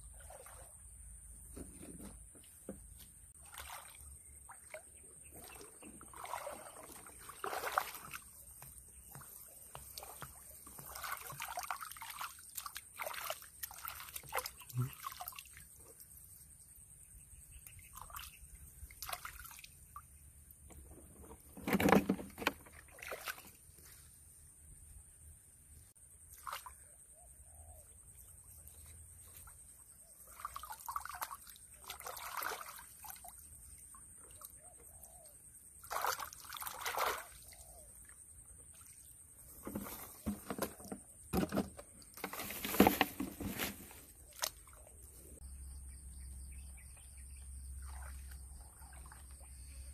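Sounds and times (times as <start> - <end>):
shallow water splashing: 3.4 - 15.8, 30.3 - 34.0.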